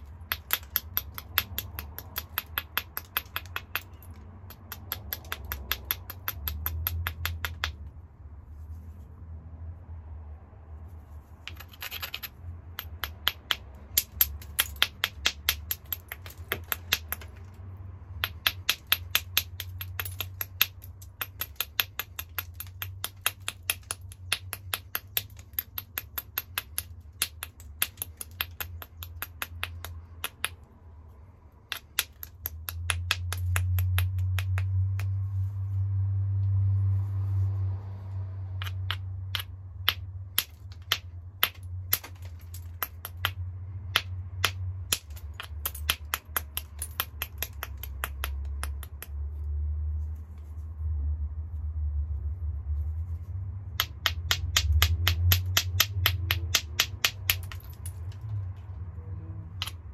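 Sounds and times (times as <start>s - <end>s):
hammerstone clicking on stone: 0.0s - 7.9s, 11.4s - 17.5s, 18.2s - 30.7s, 31.7s - 35.2s, 38.6s - 49.2s, 53.8s - 58.7s, 59.5s - 59.9s.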